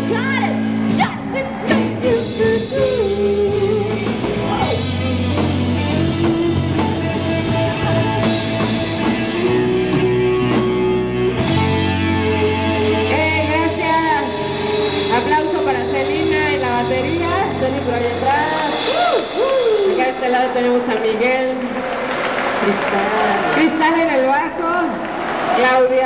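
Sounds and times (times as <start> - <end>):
woman singing lead vocals: 0.0 - 5.1, 12.4 - 20.9
live rock band playing: 0.0 - 23.6.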